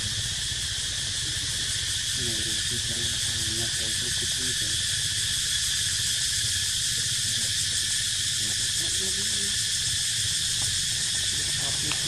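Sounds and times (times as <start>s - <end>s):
insects droning: 0.0s - 12.0s.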